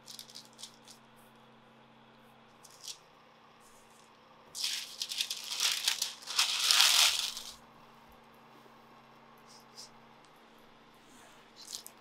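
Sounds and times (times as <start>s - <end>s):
baking paper rustling: 0.0s - 1.0s, 4.6s - 7.6s.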